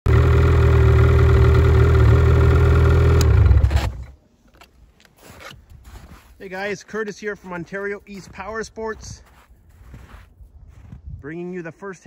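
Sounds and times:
snowmobile engine idling: 0:00.1 - 0:04.1.

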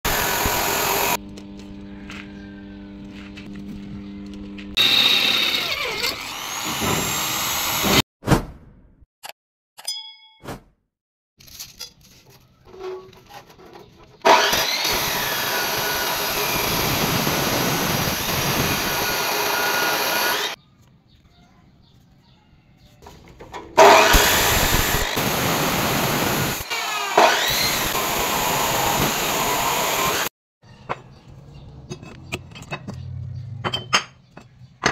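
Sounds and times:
chop saw cutting steel: 0:00.1 - 0:01.2, 0:04.8 - 0:08.0, 0:14.2 - 0:20.6, 0:23.8 - 0:30.3.

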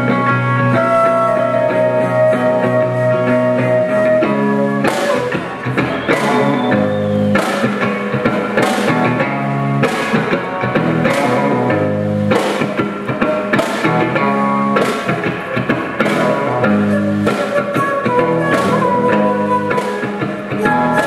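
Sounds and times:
guitar: 0:00.0 - 0:21.0
flute holding a note: 0:00.7 - 0:07.3, 0:16.5 - 0:21.0
steady drum beat: 0:04.0 - 0:21.0.

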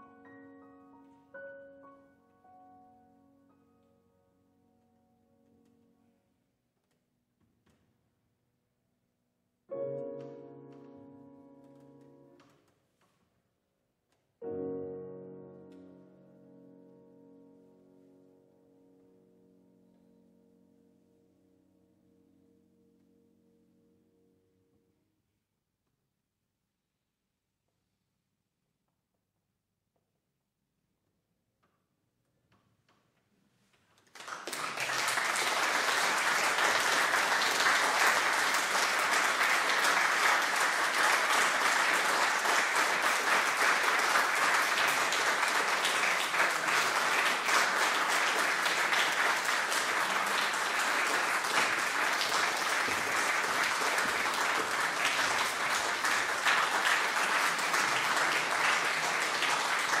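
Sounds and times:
audience applauding: 0:34.0 - 1:00.0.

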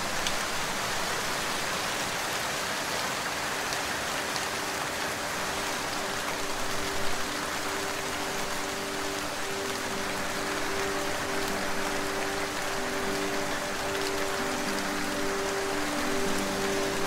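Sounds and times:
low music pad tones: 0:00.0 - 0:17.0
steady rain hiss: 0:00.0 - 0:17.0
raindrop ticks: 0:00.1 - 0:00.5.

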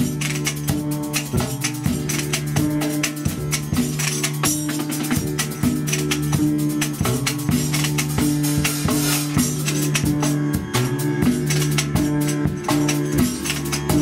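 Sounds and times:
drum kit beat: 0:00.0 - 0:14.0.

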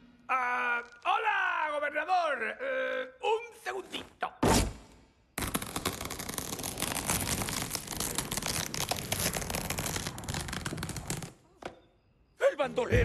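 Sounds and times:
dense crackling crinkling: 0:05.4 - 0:11.5.

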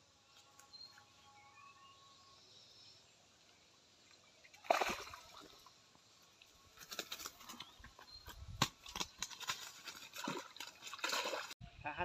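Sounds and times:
fish splashing in water: 0:04.6 - 0:05.7, 0:08.9 - 0:11.6
rustling and crackling plants: 0:05.5 - 0:11.6.

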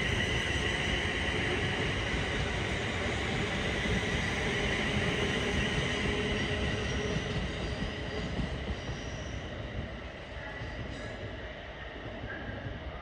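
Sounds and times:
train wheels rumbling on rails: 0:00.0 - 0:13.0.

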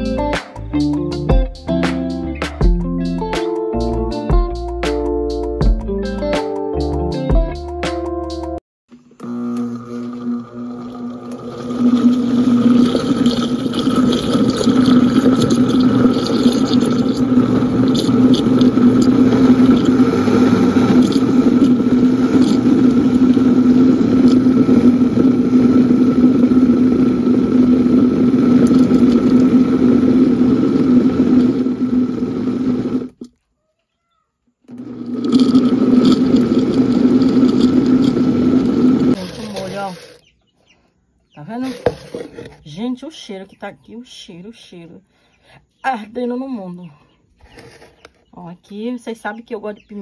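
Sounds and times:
electric blender running: 0:09.0 - 0:33.2, 0:34.7 - 0:40.2, 0:41.6 - 0:42.5.

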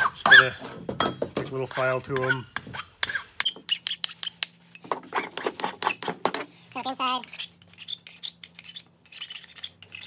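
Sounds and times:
hand file scraping metal: 0:01.6 - 0:10.0.

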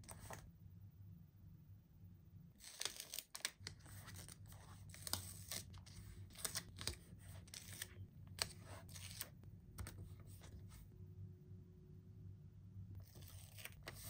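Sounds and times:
stickers peeling and rustling: 0:02.6 - 0:10.5.

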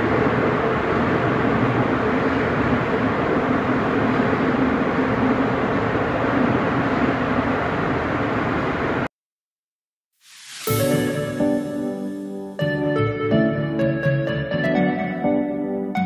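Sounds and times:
subway train rumbling in tunnel: 0:00.0 - 0:09.1, 0:10.7 - 0:12.3.

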